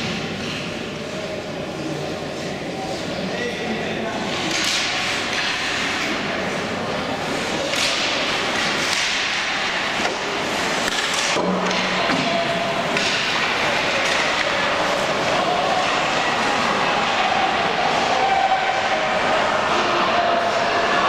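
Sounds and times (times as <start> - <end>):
hockey sticks and puck knocking: 4.3 - 6.3, 7.4 - 16.4.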